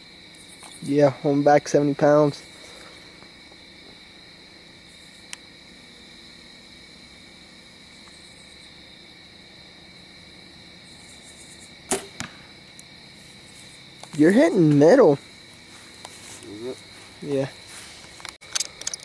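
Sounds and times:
crickets chirping: 0.0 - 19.0
bow shot crack: 11.8 - 12.8
arrow hitting foam target: 11.9 - 12.5.

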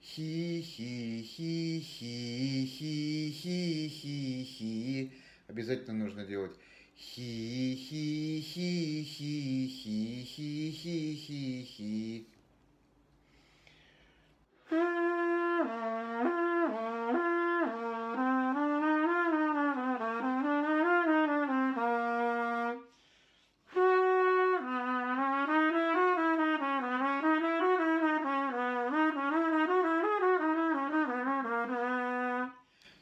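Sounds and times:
solo trumpet scale exercise: 14.6 - 23.0, 23.7 - 32.8.

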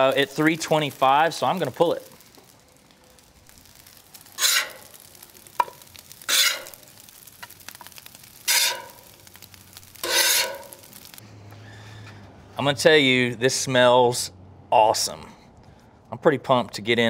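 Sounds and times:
faint sizzle: 0.0 - 12.2
metal spatula scraping griddle: 4.3 - 5.2, 6.2 - 6.8, 8.4 - 11.1.

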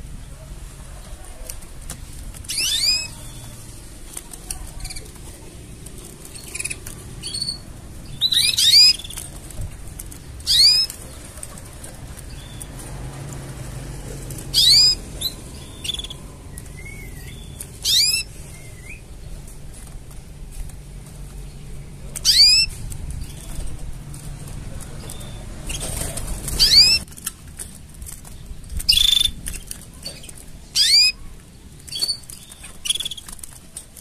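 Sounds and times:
canary chirping: 1.4 - 20.6, 21.2 - 33.8.

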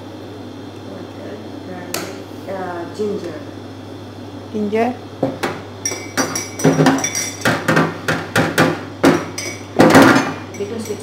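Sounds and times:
spoon clinking against glass mug: 5.8 - 7.4.

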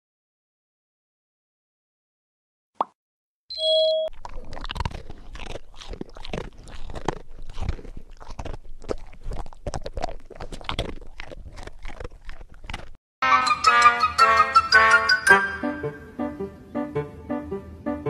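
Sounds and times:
short electronic tone: 3.5 - 4.1
cat chewing on paw: 4.1 - 13.0.

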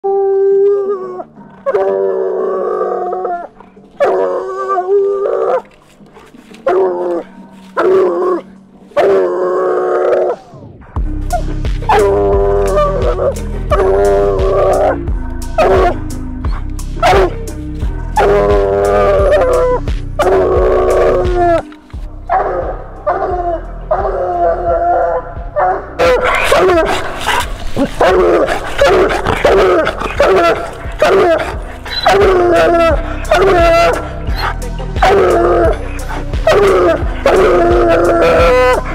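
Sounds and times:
dog howling: 0.0 - 5.7, 6.6 - 10.6, 11.9 - 17.4, 18.1 - 21.7, 22.3 - 38.9
hound baying: 11.2 - 21.7, 22.3 - 38.9.

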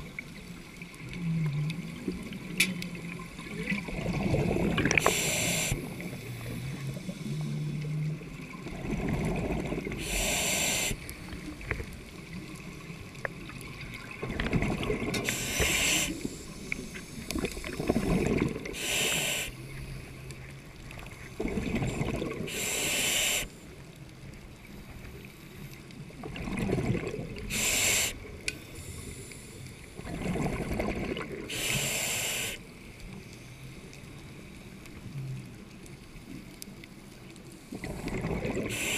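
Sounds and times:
bubbles rumbling: 3.3 - 5.0, 8.2 - 10.0, 13.4 - 15.3, 17.3 - 18.8, 21.4 - 22.5, 26.2 - 27.5, 30.0 - 31.5, 37.8 - 38.7
regulator breath hissing: 5.0 - 5.8, 10.0 - 11.1, 15.2 - 17.2, 18.8 - 19.7, 22.5 - 23.6, 27.5 - 29.5, 31.5 - 32.6, 38.7 - 38.9.

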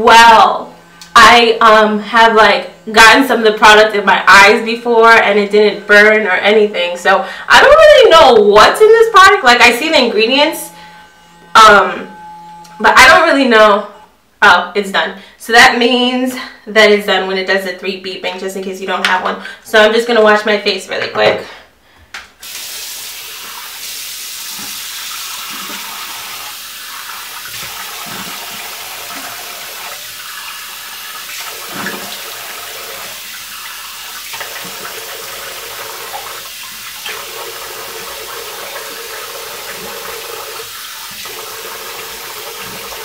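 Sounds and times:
water running from tap: 22.4 - 43.0
water splashing: 22.5 - 43.0.

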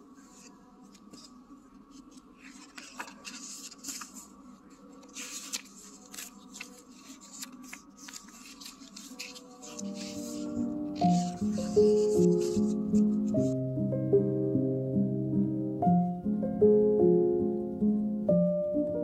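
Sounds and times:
paper pages rustling: 0.2 - 13.6.

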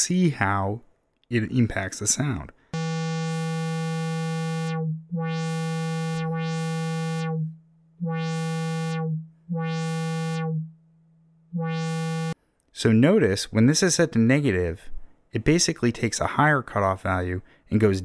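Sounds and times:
analog synthesizer low note: 2.8 - 12.4.

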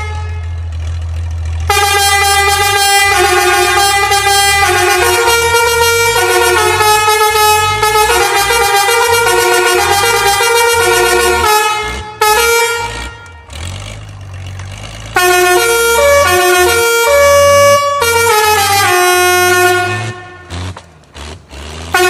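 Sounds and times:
musical air horn melody: 0.0 - 0.6, 1.7 - 13.6, 15.2 - 20.6.

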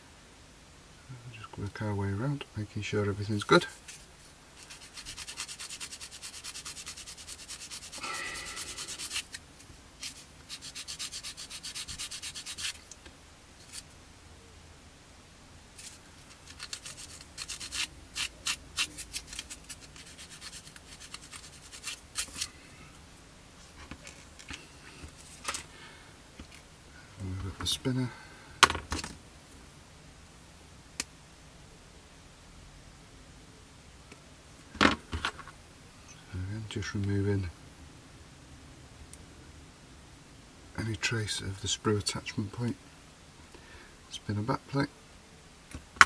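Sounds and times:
sanding stick rubbing plastic: 4.6 - 9.4, 10.0 - 12.8, 15.8 - 22.5.

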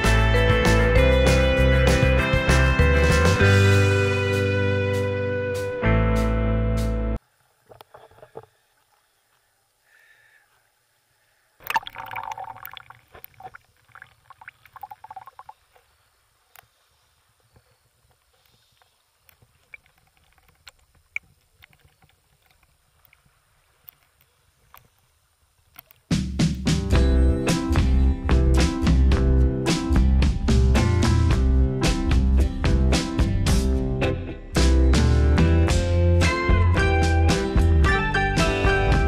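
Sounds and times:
background music: 0.0 - 7.2, 26.7 - 39.0
water sloshing and splashing: 11.6 - 15.8
small clicks: 18.1 - 25.1, 25.7 - 26.1.

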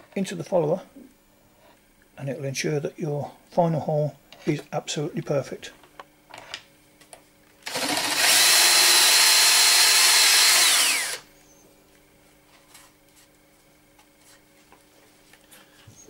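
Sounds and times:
cordless drill whining: 7.7 - 11.3.

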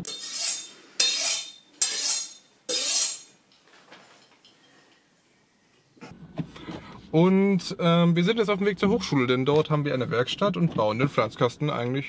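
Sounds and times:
knife blade scraping metal: 0.0 - 3.4.

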